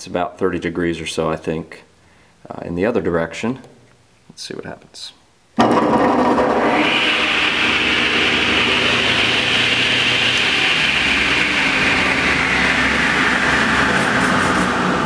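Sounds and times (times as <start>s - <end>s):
table saw motor humming and whining: 5.6s - 15.0s.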